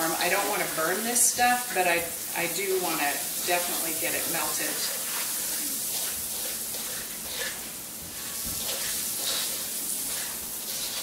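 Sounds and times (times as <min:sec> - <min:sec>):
butter and sugar sizzling in wok: 0:00.0 - 0:11.0
spatula scraping wok: 0:03.2 - 0:11.0.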